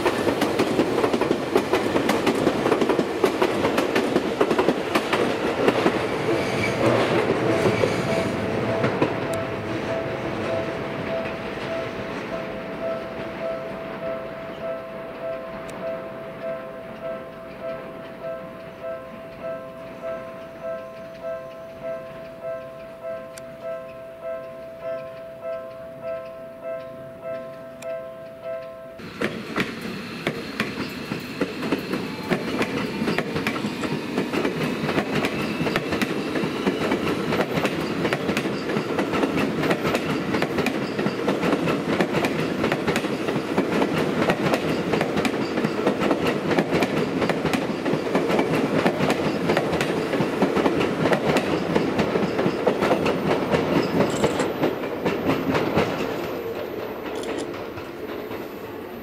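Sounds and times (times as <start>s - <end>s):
train wheels clattering over rail joints: 0.0s - 8.2s, 29.1s - 58.5s.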